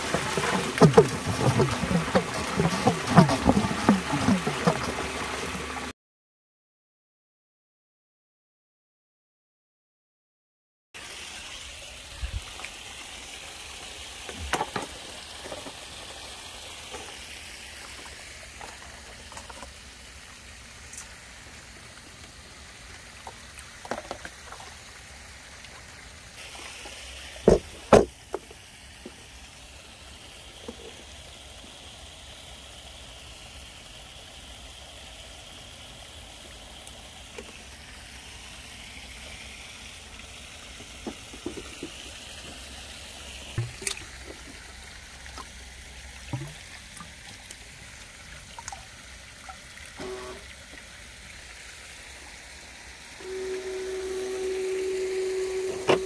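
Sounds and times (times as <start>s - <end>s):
water splashing from nozzle: 0.0s - 5.9s, 36.1s - 56.0s.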